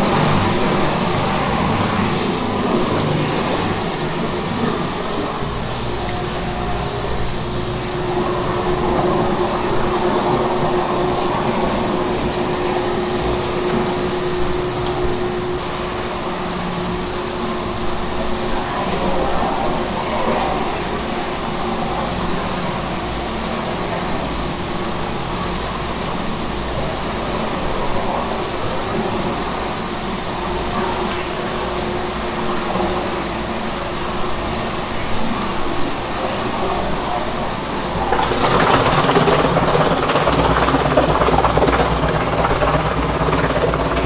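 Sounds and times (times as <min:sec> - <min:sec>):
industrial mixer rumbling: 0:00.0 - 0:44.0
steady mixer hum: 0:37.6 - 0:44.0.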